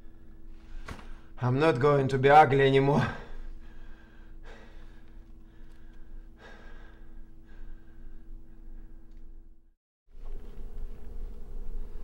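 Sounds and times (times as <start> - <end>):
low room hum: 0.0 - 12.0
man breathing softly: 3.2 - 9.2.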